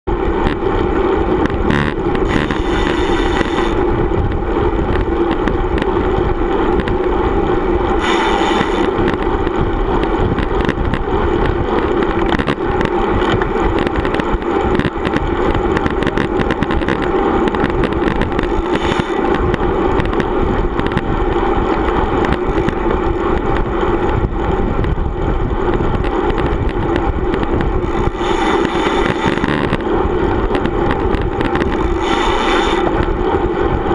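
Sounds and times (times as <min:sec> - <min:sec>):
road noise: 0:00.0 - 0:33.9
wind rush: 0:00.1 - 0:33.9
short high-pitched buzzes: 0:01.4 - 0:03.8, 0:08.0 - 0:09.2, 0:18.1 - 0:19.2, 0:27.8 - 0:29.8, 0:31.6 - 0:32.9.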